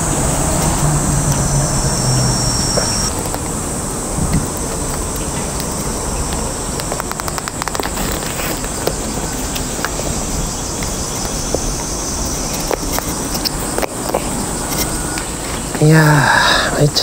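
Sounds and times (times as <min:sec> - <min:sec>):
low rumble: 0:00.0 - 0:05.6
high insect drone: 0:00.0 - 0:17.0
small ticks and clicks: 0:00.6 - 0:15.4.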